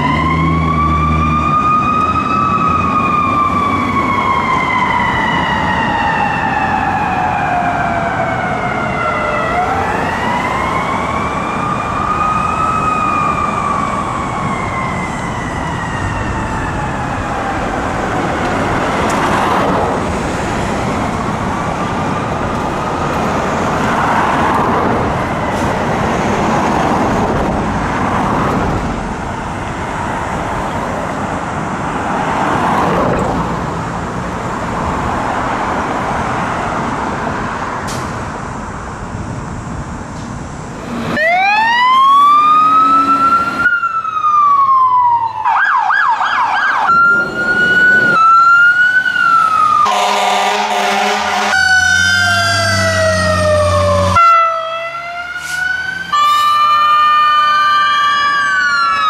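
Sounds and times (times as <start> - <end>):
loud siren wailing and yelping: 0.0 - 19.7, 41.0 - 59.0
fire truck siren wailing: 0.0 - 37.8, 40.8 - 59.0
traffic noise: 0.0 - 59.0.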